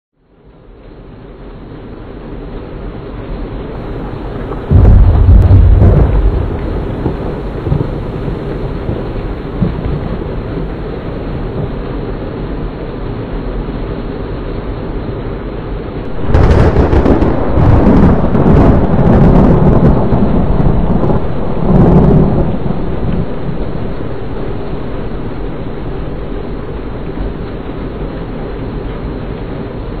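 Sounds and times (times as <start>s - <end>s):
heavy rain pouring: 0.2s - 30.0s
thunderclap rumbling: 3.8s - 12.0s, 16.0s - 30.0s.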